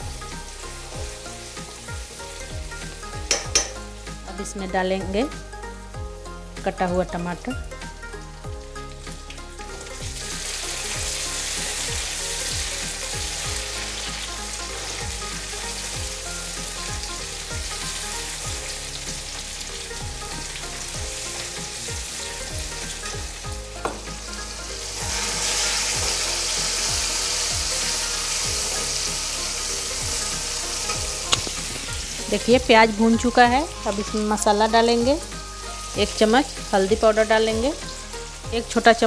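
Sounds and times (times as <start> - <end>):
background music: 0.0 - 39.0
vegetables sizzling in oil: 0.0 - 39.0.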